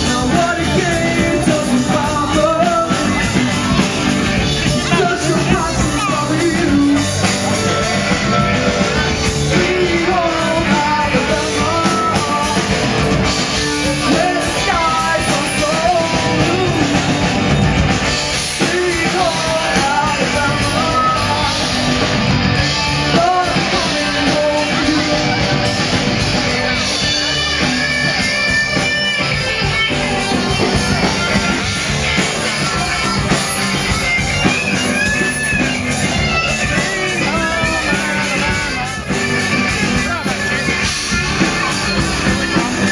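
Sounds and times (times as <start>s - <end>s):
man singing: 0.0s - 31.2s, 32.4s - 42.9s
rock band playing: 0.0s - 42.9s.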